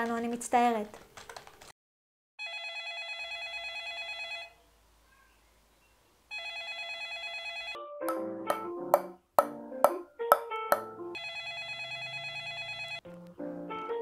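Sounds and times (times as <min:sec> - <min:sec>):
electronic telephone ringing: 0:02.4 - 0:04.5, 0:06.3 - 0:07.8, 0:11.2 - 0:13.0
short pinging notes: 0:08.0 - 0:10.9
ball knocking on wooden paddle: 0:08.1 - 0:10.9.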